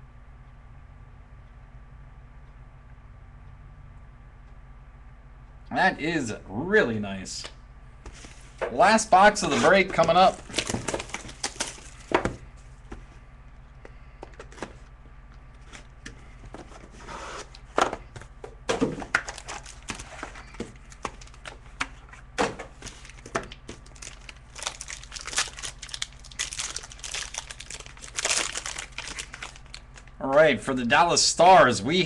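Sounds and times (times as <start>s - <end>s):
plastic wrap crinkling and tearing: 9.4s - 12.1s, 19.2s - 21.8s, 22.8s - 30.2s.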